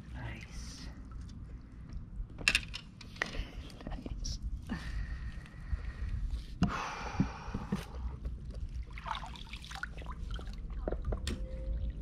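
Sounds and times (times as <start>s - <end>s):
steady low rumble: 3.2s - 9.0s
water trickling and dripping: 8.3s - 12.0s
water splashing: 8.6s - 12.0s.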